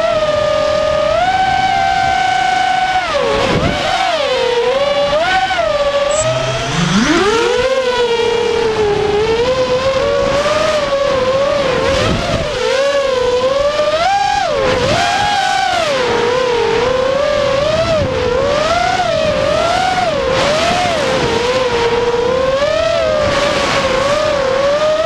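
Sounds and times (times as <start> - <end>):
drone motors whining: 1.7 - 20.3.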